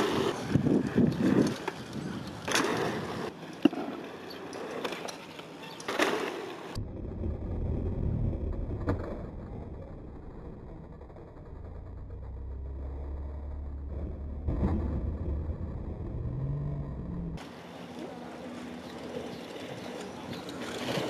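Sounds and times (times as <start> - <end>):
bike tyres rolling on dirt: 0.0 - 17.6, 18.4 - 21.0
quiet low rumble: 6.8 - 17.4.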